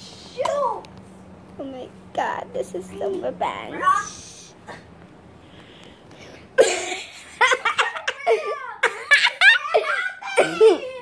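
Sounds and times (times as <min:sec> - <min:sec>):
children laughing: 0:07.0 - 0:11.0.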